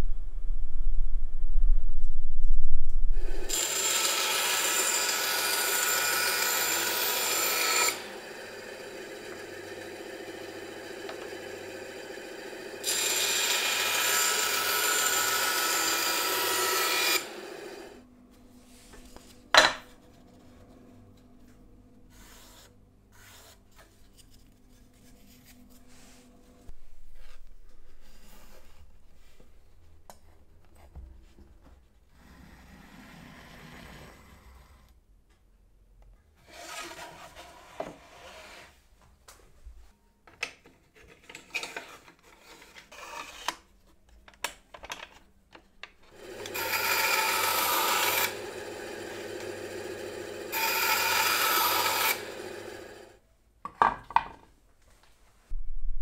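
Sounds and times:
tool rasping wood: 0:03.5 - 0:08.5, 0:46.2 - 0:49.6, 0:50.5 - 0:52.7.

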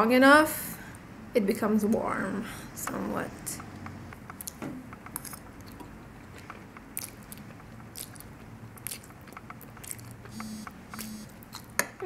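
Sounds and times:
person chewing and slurping: 0:04.3 - 0:11.8
wet mouth clicks: 0:06.4 - 0:11.8.

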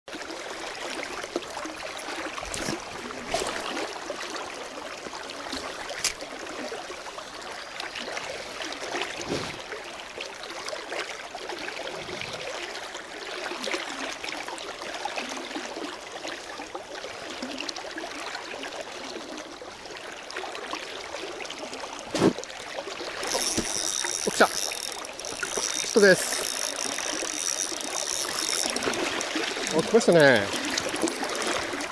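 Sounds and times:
river rushing over stones: 0:25.6 - 0:31.9.

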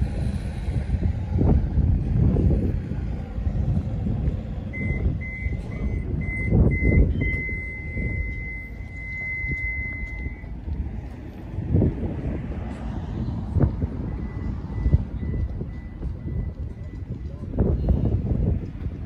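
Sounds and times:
loud low rumble: 0:00.0 - 0:19.0
electronic warning beeps: 0:04.7 - 0:10.6, 0:14.1 - 0:18.0.

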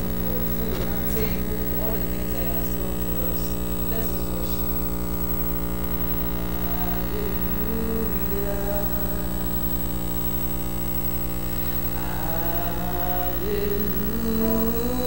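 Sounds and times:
faint singing voices: 0:00.0 - 0:10.2, 0:11.7 - 0:15.0
loud electrical mains hum: 0:00.0 - 0:15.0.

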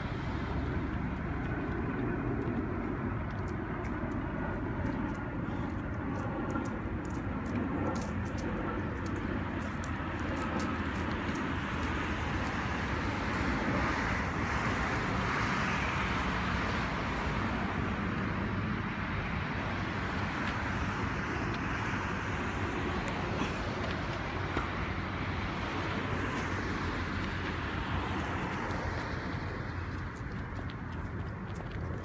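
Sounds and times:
road traffic rumble: 0:00.0 - 0:32.0.

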